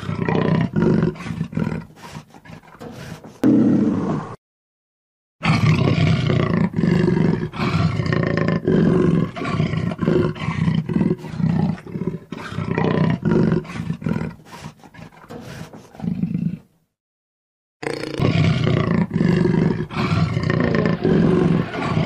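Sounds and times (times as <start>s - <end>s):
leopard roaring: 0.0s - 4.4s, 5.4s - 16.7s, 17.8s - 22.0s.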